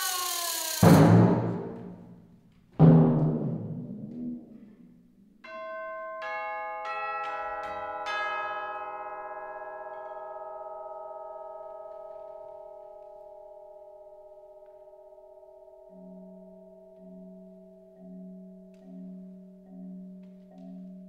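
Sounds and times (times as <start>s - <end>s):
timpani strokes: 0.0s - 2.2s
tubular bells ringing: 5.4s - 21.0s.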